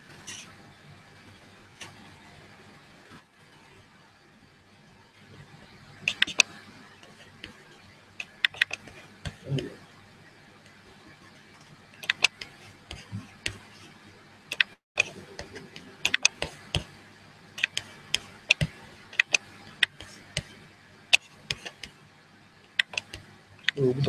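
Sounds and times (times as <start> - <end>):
faint steady hum: 0.0 - 24.0
mouse and keyboard clicks: 6.1 - 6.6, 8.2 - 9.5, 12.0 - 13.7, 14.5 - 16.9, 17.6 - 22.0, 22.7 - 23.8.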